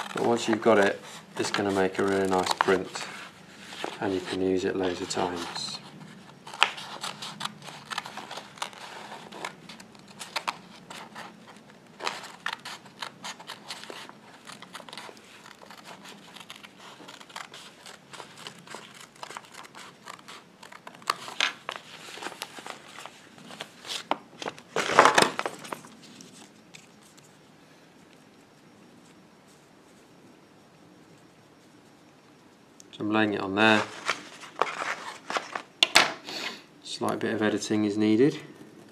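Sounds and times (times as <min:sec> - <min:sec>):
paper crinkling and rustling: 0:00.0 - 0:27.4, 0:33.6 - 0:35.8.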